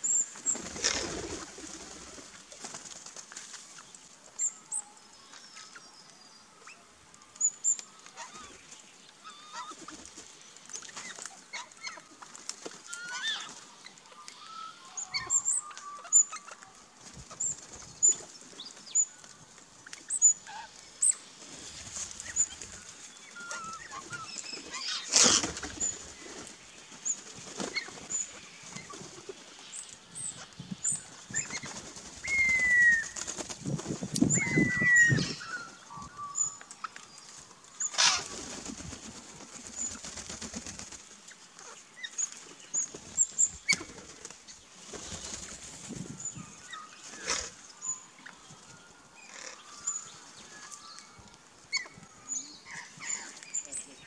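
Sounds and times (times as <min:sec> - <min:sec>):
bird wings flapping: 0:00.3 - 0:03.7, 0:21.4 - 0:29.4, 0:31.3 - 0:34.3, 0:37.9 - 0:41.7, 0:42.3 - 0:46.2
downward-sliding whistled bird calls: 0:29.7 - 0:33.2.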